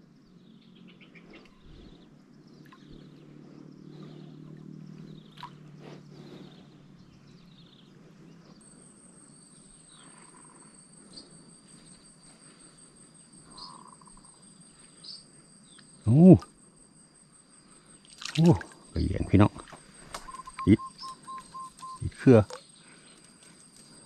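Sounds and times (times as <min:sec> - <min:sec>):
high-pitched insect drone: 0:08.5 - 0:24.0
short chirps: 0:18.4 - 0:23.1.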